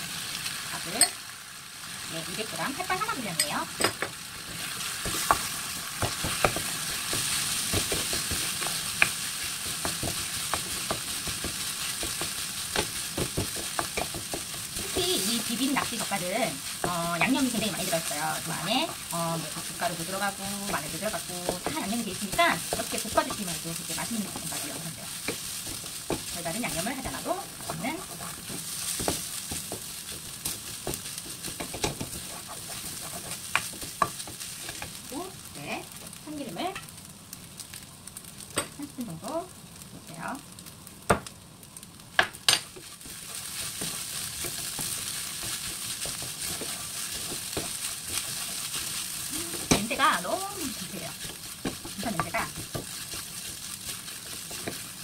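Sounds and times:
rice sizzling in oil: 0.0 - 55.0
wooden spatula scraping pan: 9.7 - 34.9, 42.8 - 55.0.

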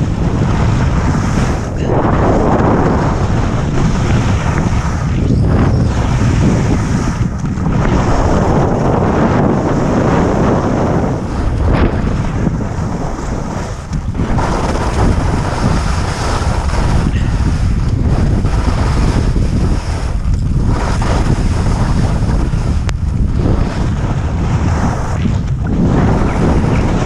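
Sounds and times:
strong wind buffeting microphone: 0.0 - 27.0.

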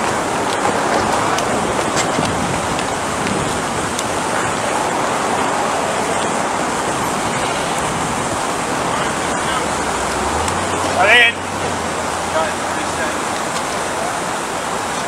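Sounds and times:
distant traffic hiss and rumble: 0.0 - 15.0.

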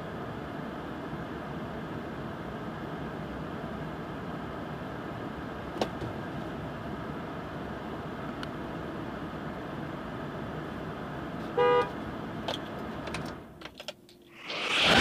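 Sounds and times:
short horn-like beep: 11.6 - 11.9
rush of noise: 14.3 - 15.0.

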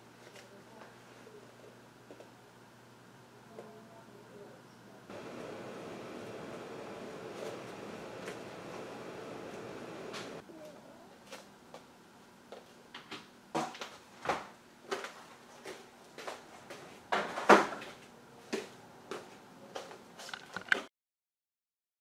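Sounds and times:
tools handled on workbench: 20.2 - 20.9.

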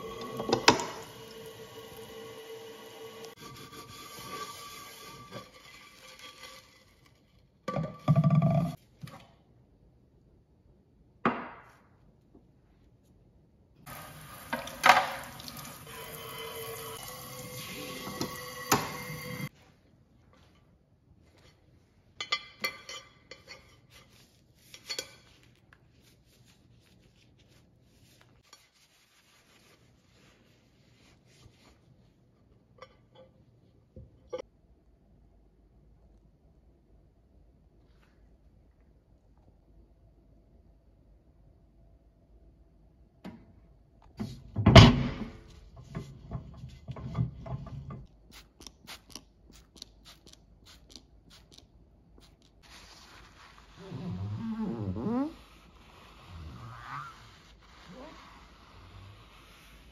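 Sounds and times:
cloth rubbing on glass: 52.6 - 59.9.

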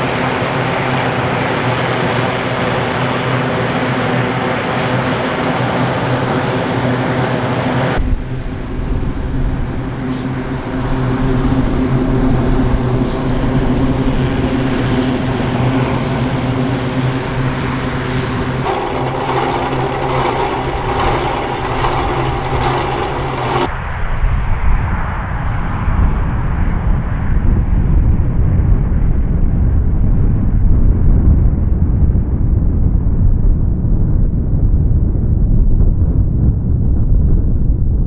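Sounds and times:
aircraft rumble at takeoff power: 12.4 - 23.7
turboprop engines droning: 18.4 - 23.7.

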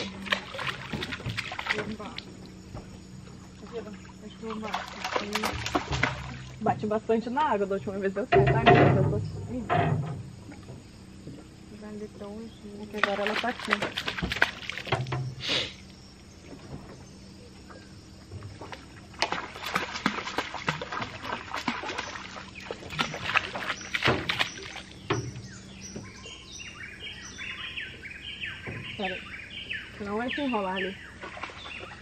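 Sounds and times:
pole tip splashing water: 0.0 - 2.5, 3.6 - 6.6, 12.9 - 15.2, 18.5 - 25.4, 31.2 - 32.0
bird calling: 21.1 - 32.0.

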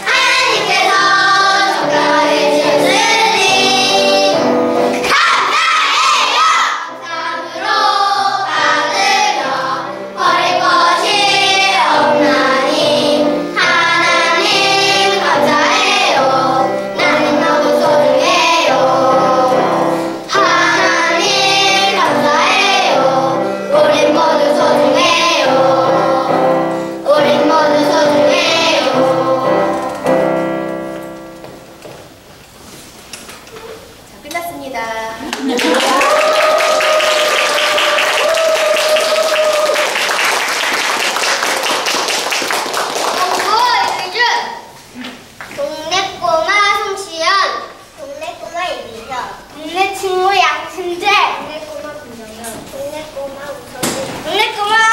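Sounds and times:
children singing in unison: 0.0 - 30.4
instrumental accompaniment: 6.9 - 32.4.

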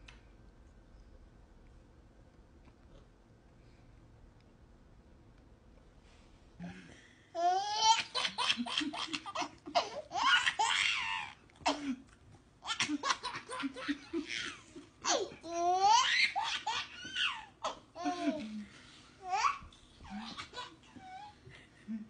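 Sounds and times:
baby laughing and squealing: 15.1 - 18.3.

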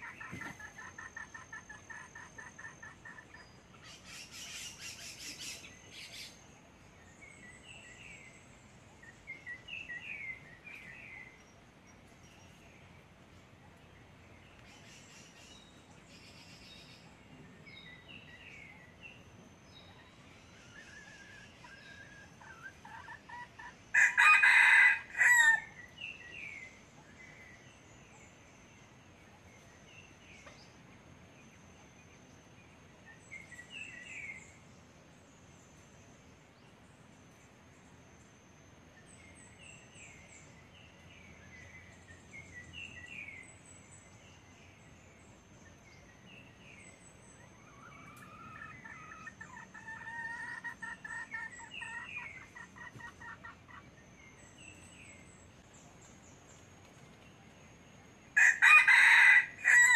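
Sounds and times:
small birds chirping: 0.0 - 59.9
rooster crowing: 23.9 - 25.8, 58.4 - 59.9.

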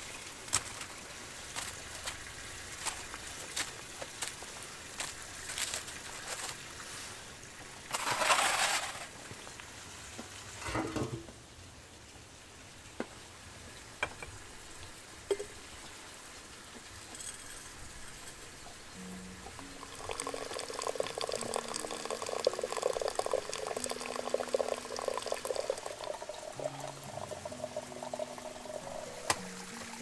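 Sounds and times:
aluminium foil crinkling: 5.0 - 6.7, 7.9 - 9.1.

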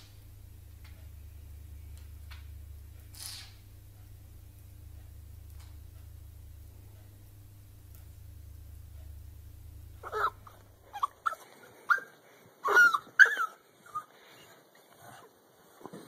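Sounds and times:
small dog yipping: 10.0 - 14.1.

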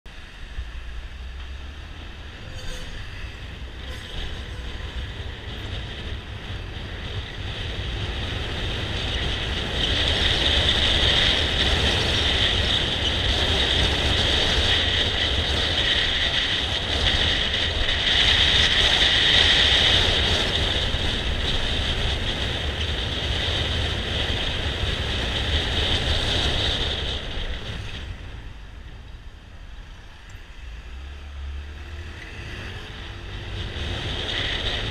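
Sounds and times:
wind and road noise: 0.0 - 34.9.

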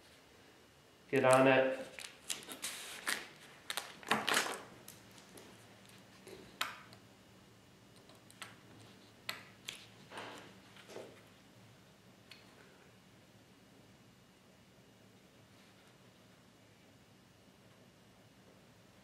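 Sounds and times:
tape rustling: 1.2 - 6.6.

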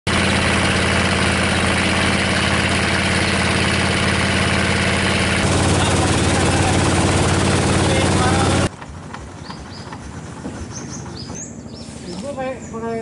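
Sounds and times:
water rushing past hull: 0.1 - 8.7
boat motor running: 0.1 - 13.0.

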